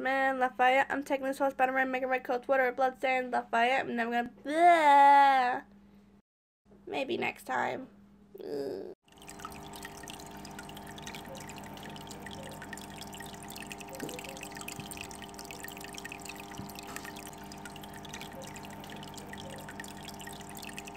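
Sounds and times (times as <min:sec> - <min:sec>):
water-like drips and clicks: 0:09.1 - 0:20.9.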